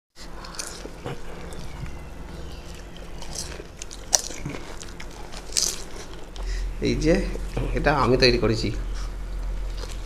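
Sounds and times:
mouths chewing and smacking: 0.2s - 6.7s
crisp shells crunching: 0.4s - 6.5s.

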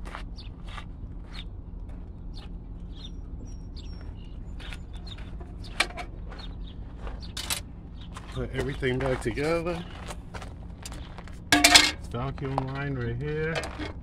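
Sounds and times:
steady low hum: 0.0s - 14.0s
small bird chirping: 0.3s - 1.6s, 2.3s - 8.8s.

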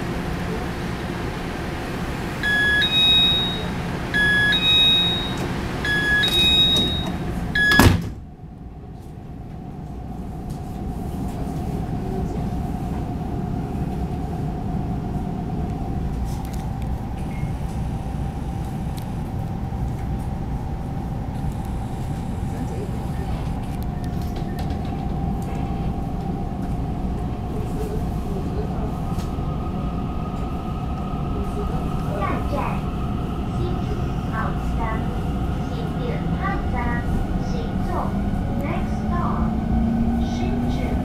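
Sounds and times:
electric train motor hum: 0.0s - 7.8s, 12.1s - 41.0s
two-note rising door chime: 2.4s - 7.8s
train doors shutting knock: 2.4s - 8.3s.

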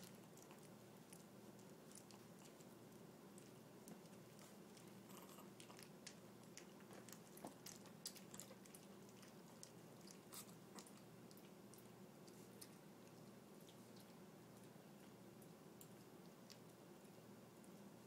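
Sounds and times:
puppies chewing and clicking: 0.0s - 18.0s.

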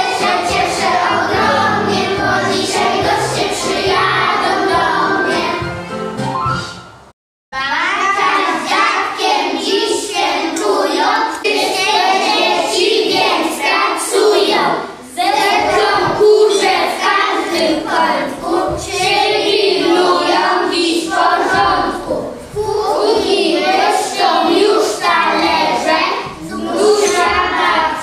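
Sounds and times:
young children singing: 0.0s - 5.7s, 7.6s - 28.0s.

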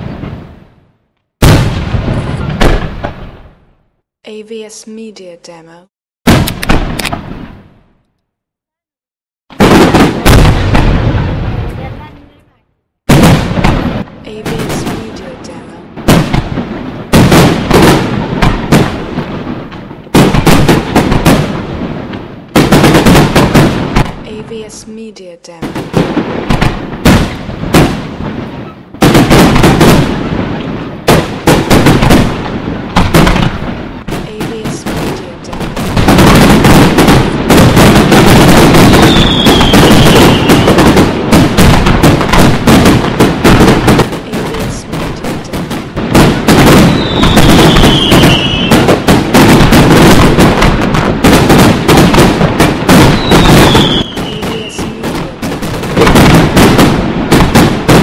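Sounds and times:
fireworks bursting and crackling: 0.0s - 5.2s, 6.2s - 8.2s, 9.5s - 58.0s
falling firework whistles: 38.8s - 40.8s, 46.9s - 48.8s, 53.1s - 54.8s.

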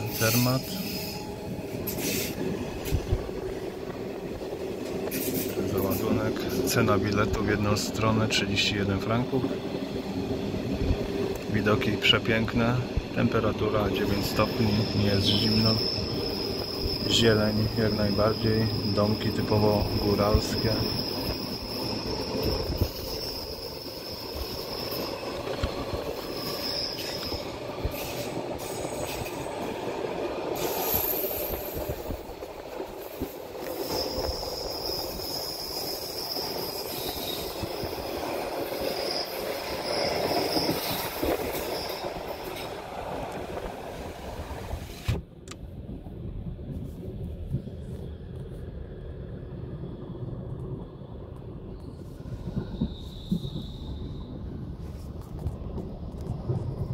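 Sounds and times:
high wheel squeal: 0.0s - 3.1s, 14.0s - 29.7s, 33.6s - 42.8s, 51.7s - 54.4s
train wagons rumbling on track: 0.0s - 56.9s
click: 45.1s - 45.6s.

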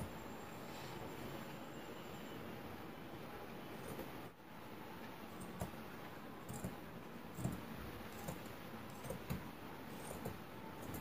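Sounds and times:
scissors snipping fabric: 6.4s - 11.0s.

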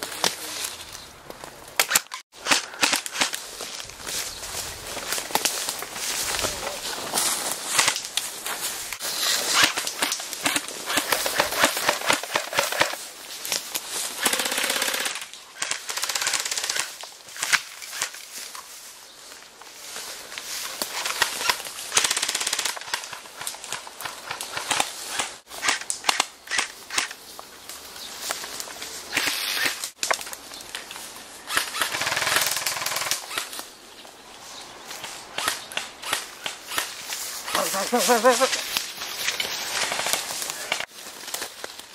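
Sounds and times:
airsoft guns firing bursts: 14.2s - 15.2s.

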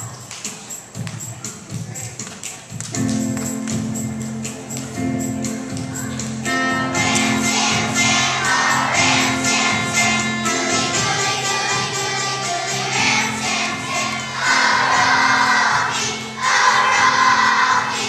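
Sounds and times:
instrumental accompaniment: 0.1s - 18.0s
children's choir singing: 6.1s - 18.0s.

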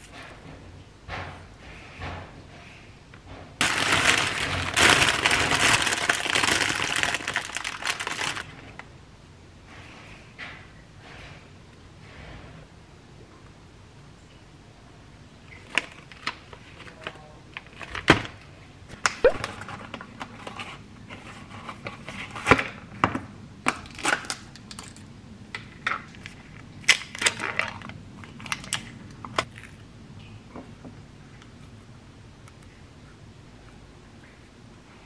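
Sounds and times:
food packaging clicks and crinkles: 3.6s - 8.9s, 15.5s - 22.8s, 23.7s - 29.8s.

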